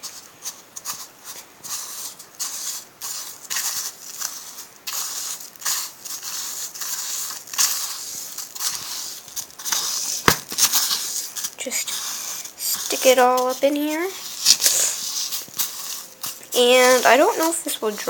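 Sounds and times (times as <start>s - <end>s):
gritty slime crunching: 0.0s - 18.0s.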